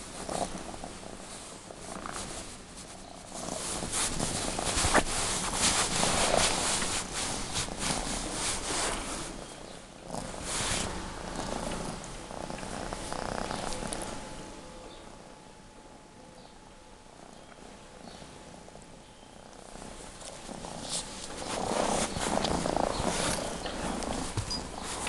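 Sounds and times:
bed sheet rustling: 0.0s - 9.5s, 10.1s - 12.0s, 19.8s - 25.0s
cat purring: 0.0s - 16.1s, 17.1s - 25.0s.

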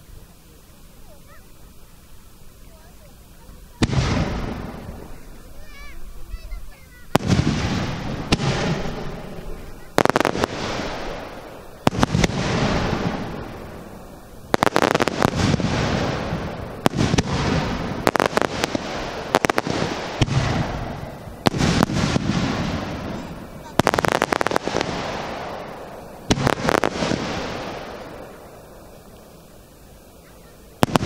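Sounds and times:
rapid firework crackling: 0.0s - 31.0s
firework shells bursting: 7.0s - 29.9s, 30.8s - 31.0s
rolling echo of bangs: 7.2s - 9.4s, 14.6s - 25.7s.

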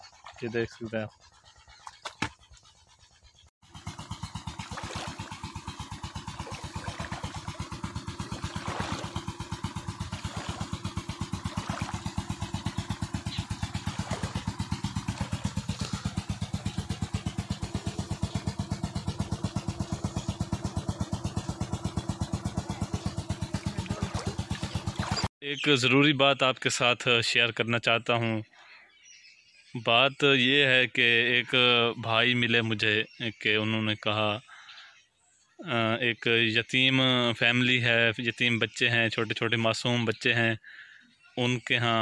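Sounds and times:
pump engine thudding: 3.6s - 25.3s.

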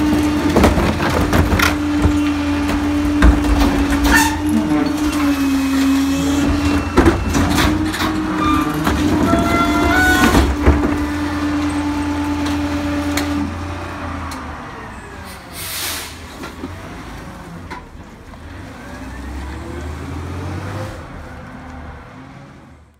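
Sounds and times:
garbage truck engine running: 0.0s - 20.3s
air brake hiss: 15.3s - 16.2s.

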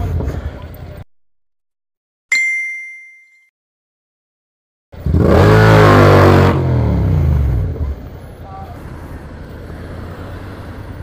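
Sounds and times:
bell-like ding: 2.3s - 3.5s
motorcycle engine accelerating: 5.0s - 8.0s.

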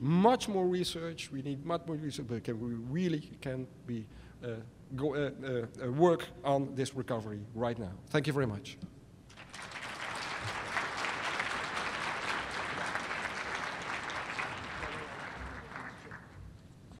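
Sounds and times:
audience applauding: 9.3s - 16.4s.

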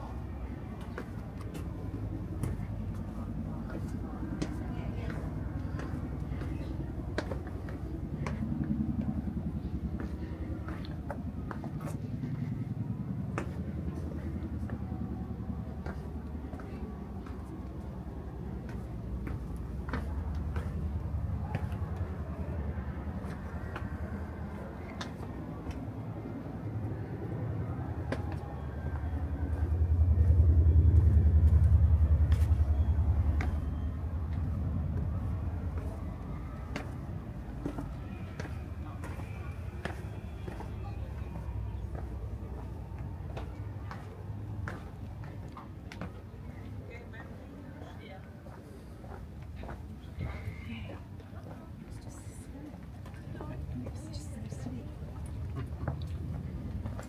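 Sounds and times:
distant traffic rumble: 0.0s - 57.0s
faint voices: 0.0s - 57.0s
footsteps on stone steps: 0.2s - 26.8s, 27.5s - 57.0s
footsteps on stone: 36.6s - 46.2s.

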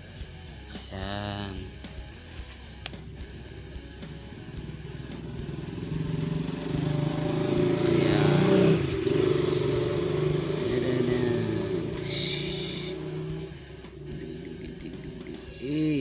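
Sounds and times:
vehicle engine passing: 2.3s - 16.0s.

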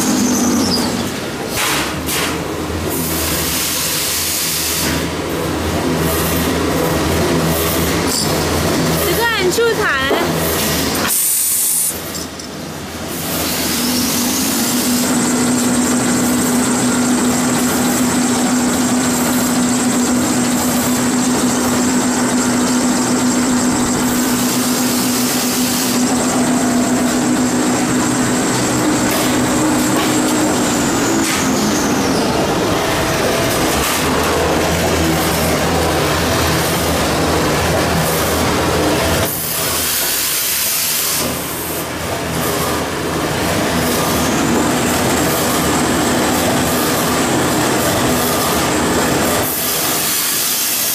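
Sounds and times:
steady mechanical machine noise: 0.0s - 50.9s
motor hum and high whine: 4.6s - 50.9s.

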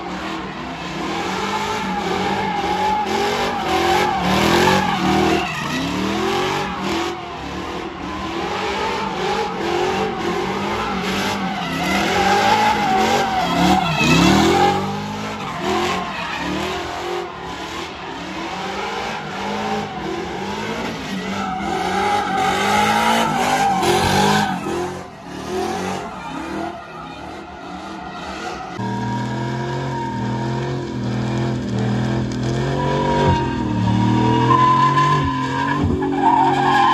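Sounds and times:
tire squeal and skidding: 0.0s - 36.9s
truck engine revving: 0.0s - 36.9s.

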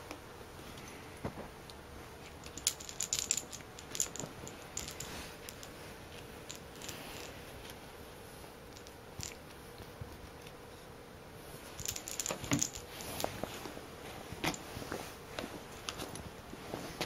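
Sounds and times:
metallic clinking of toy lure: 2.4s - 5.7s, 11.8s - 13.3s.

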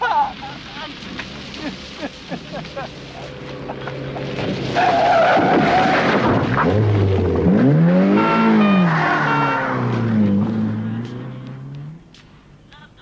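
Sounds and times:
car engine passing by: 2.6s - 12.6s
tyres squealing: 3.0s - 12.0s.

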